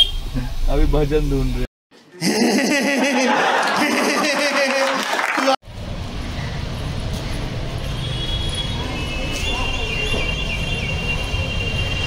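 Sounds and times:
street traffic rumble: 0:00.0 - 0:01.7, 0:05.6 - 0:12.0.

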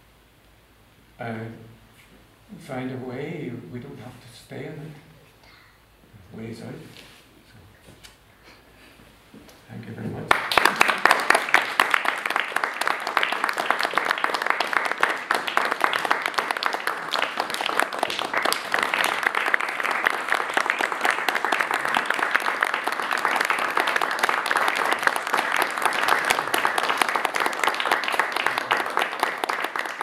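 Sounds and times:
audience applauding: 0:10.3 - 0:30.0.

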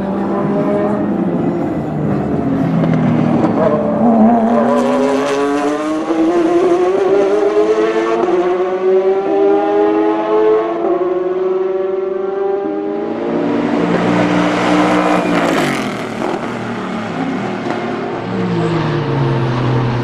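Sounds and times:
race car engines passing: 0:00.0 - 0:20.0
race cars accelerating away: 0:00.0 - 0:20.0.

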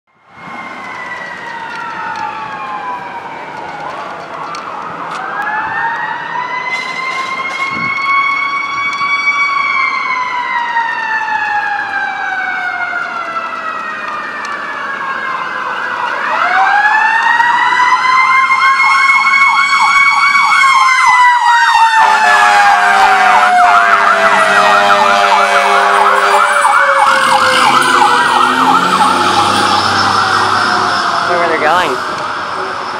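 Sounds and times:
fire engine siren wailing: 0:00.1 - 0:32.9
siren fast warbling yelp: 0:18.8 - 0:32.6
steady blaring horn tone: 0:21.9 - 0:32.0.

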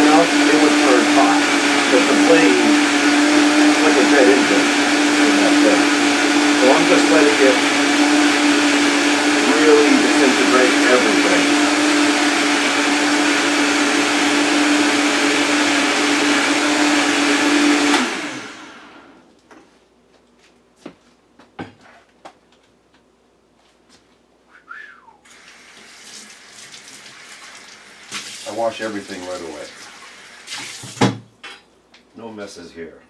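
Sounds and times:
blender running at full speed: 0:00.0 - 0:19.2, 0:25.3 - 0:30.7
kitchen tap running: 0:25.3 - 0:31.2.

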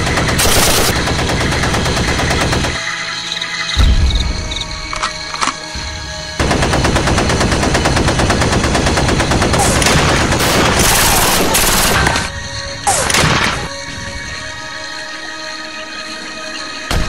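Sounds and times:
automatic gunfire: 0:00.0 - 0:02.8, 0:06.4 - 0:12.3.

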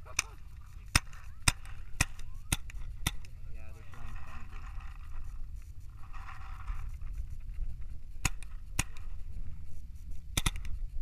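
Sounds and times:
paintball marker shots: 0:00.0 - 0:03.4, 0:08.0 - 0:09.4, 0:10.1 - 0:11.0
steady low rumble: 0:00.0 - 0:11.0.

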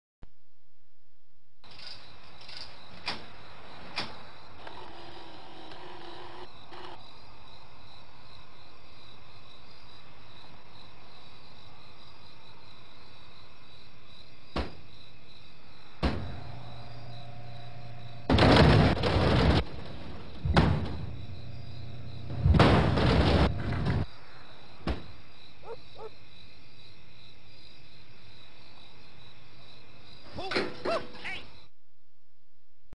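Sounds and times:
vending machine drone: 0:04.5 - 0:07.0, 0:15.9 - 0:24.1
dispensing motor whirring and rattling: 0:16.0 - 0:24.0.

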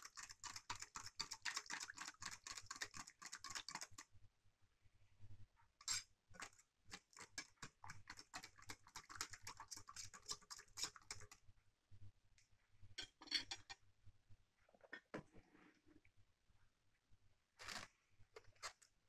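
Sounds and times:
whisk clicking against a bowl: 0:00.0 - 0:04.1, 0:05.8 - 0:11.4.

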